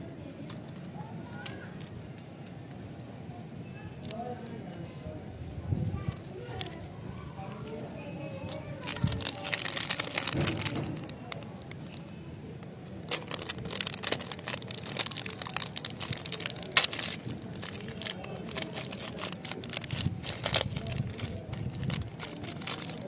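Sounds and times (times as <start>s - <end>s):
plastic wrapper crinkling and tearing: 8.4s - 23.0s.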